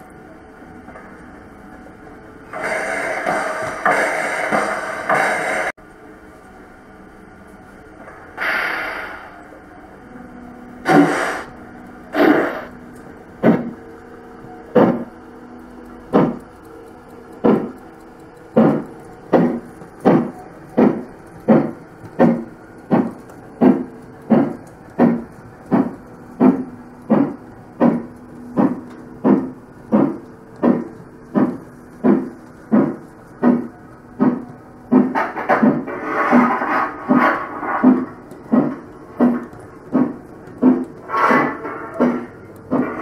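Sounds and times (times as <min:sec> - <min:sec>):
model steam locomotive chuffs: 0:02.4 - 0:05.7, 0:08.4 - 0:09.6, 0:15.8 - 0:43.0
burst of noise: 0:10.8 - 0:12.8.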